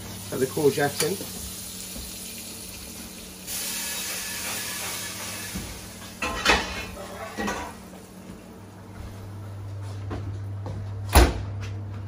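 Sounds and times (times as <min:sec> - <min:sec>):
oven hissing: 0:00.0 - 0:08.2.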